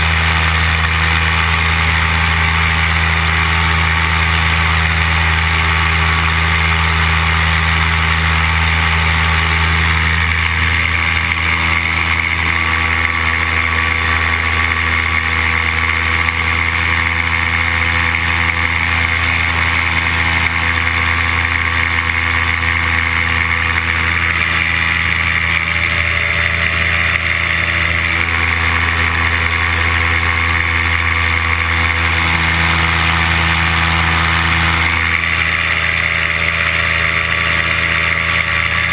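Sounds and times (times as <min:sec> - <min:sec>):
paramotor engine droning: 0:00.0 - 0:38.9.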